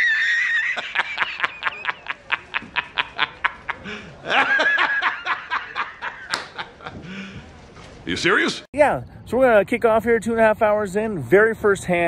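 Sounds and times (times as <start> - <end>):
man laughing in high voice: 0.0 - 7.2.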